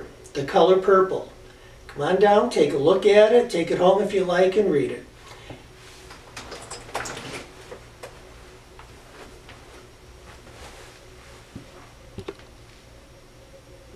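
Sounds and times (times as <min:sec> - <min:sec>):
person getting up from office chair: 0:05.2 - 0:12.8.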